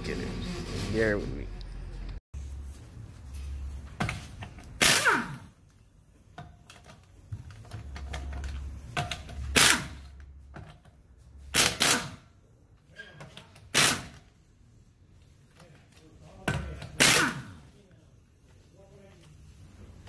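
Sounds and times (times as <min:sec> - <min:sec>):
impact wrench hammering: 0:09.0 - 0:10.1, 0:16.4 - 0:17.6.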